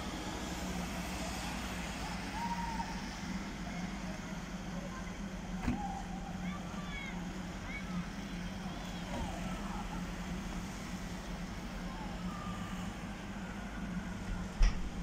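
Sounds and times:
low hum of urban street: 0.0 - 15.0
distant children shouting: 2.0 - 3.3, 4.9 - 10.8, 11.6 - 14.6.

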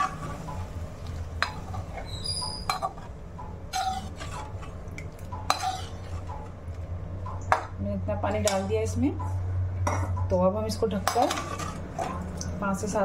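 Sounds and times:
skimmer stirring watery curry: 0.0 - 6.8.

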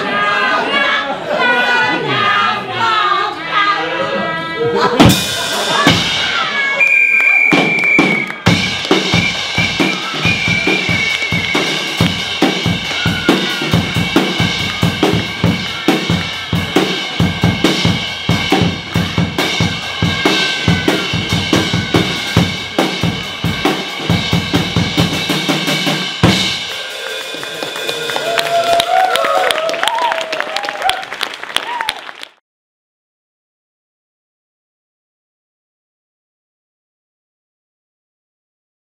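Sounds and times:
bass drum and snare drumming: 5.0 - 29.0.

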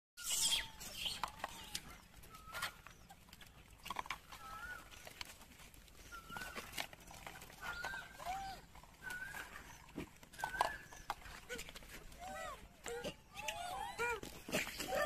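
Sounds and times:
high arching animal calls: 0.2 - 3.3.

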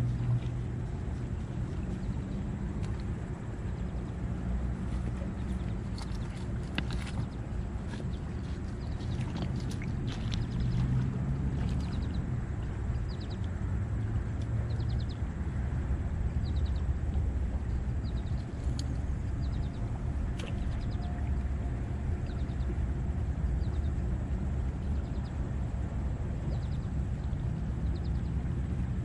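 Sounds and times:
wind rumble on microphone: 0.0 - 29.0.

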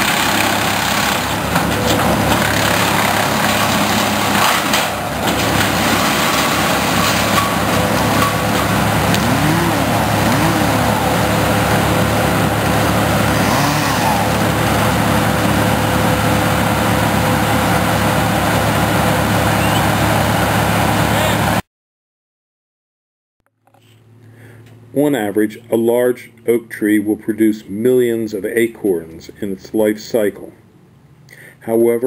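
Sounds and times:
wood chipper running: 0.0 - 21.6.

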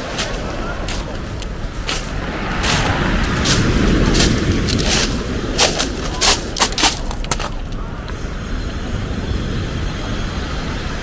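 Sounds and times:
footsteps crunching on pebbles: 0.0 - 7.8
surf on a pebble beach: 0.0 - 11.0.

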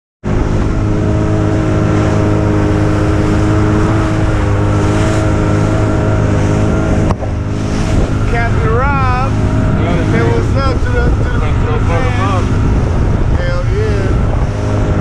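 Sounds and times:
boat motor running: 0.2 - 15.0
water rushing along hull: 0.2 - 15.0.

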